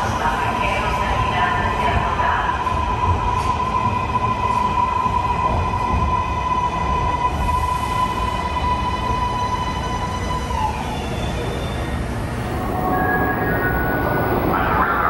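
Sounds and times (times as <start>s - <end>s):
high-pitched whine: 12.3s - 15.0s.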